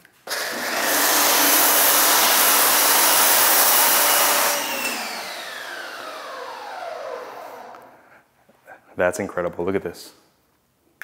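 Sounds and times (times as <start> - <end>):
pump motor winding down: 0.3 - 7.9.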